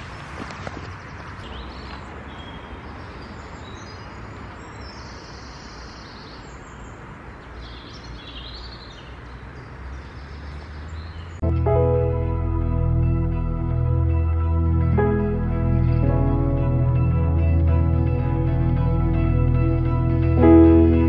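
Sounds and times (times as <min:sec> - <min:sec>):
birds chirping: 0:00.0 - 0:11.5
road traffic rushing: 0:00.0 - 0:21.0.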